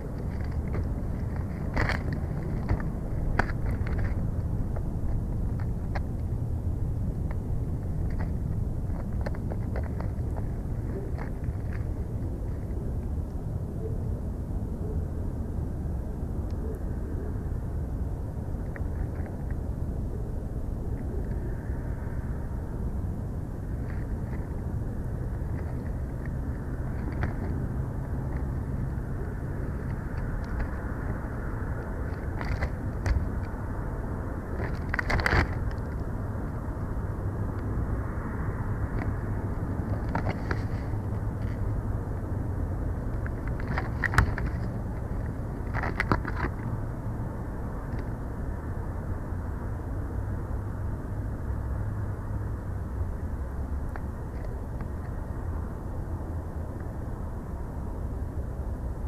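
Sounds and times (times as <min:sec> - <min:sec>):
sticks crackling and rustling: 0:00.0 - 0:06.2, 0:23.7 - 0:36.7, 0:38.9 - 0:41.7, 0:43.1 - 0:46.8
faint hum: 0:00.0 - 0:59.0
low outdoor rumble: 0:00.0 - 0:59.0.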